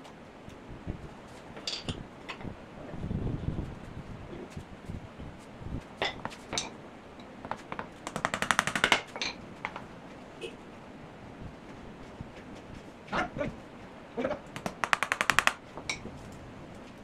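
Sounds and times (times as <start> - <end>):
fast rattle of clicks: 14.6 - 15.6.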